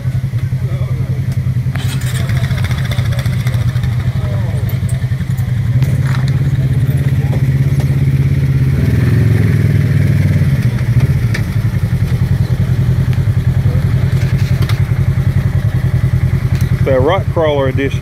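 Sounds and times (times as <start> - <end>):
vehicle engine idling: 0.0 - 18.0.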